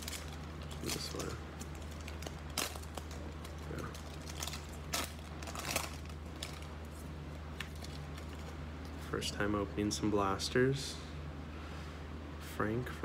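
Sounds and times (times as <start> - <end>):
plastic wrapping crinkling: 0.0 - 8.6.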